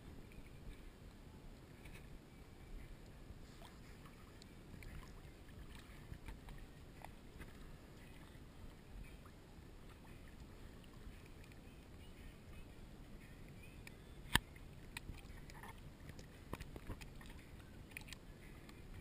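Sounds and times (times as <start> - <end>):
small waves lapping: 0.0 - 19.0
water splashing against camera: 0.0 - 19.0.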